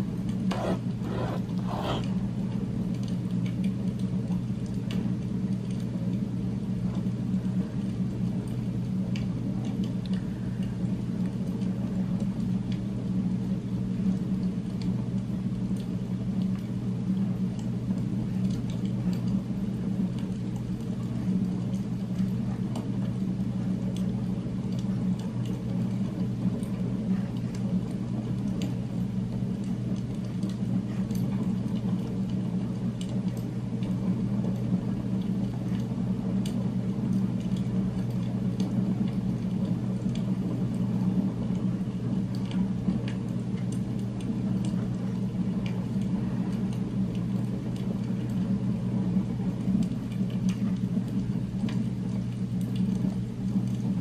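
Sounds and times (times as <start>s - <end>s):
low rumbling background hum: 0.0s - 54.0s
pen scratching on paper: 0.5s - 2.2s.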